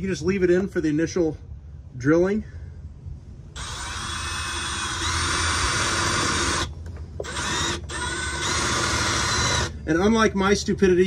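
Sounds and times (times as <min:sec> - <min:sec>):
cordless drill boring into metal: 0:03.6 - 0:09.8.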